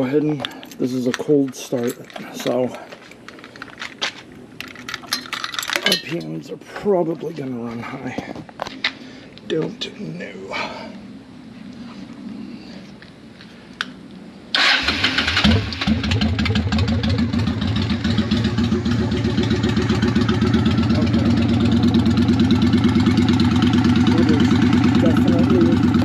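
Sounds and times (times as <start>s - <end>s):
motorcycle engine starting and idling: 14.5s - 26.0s.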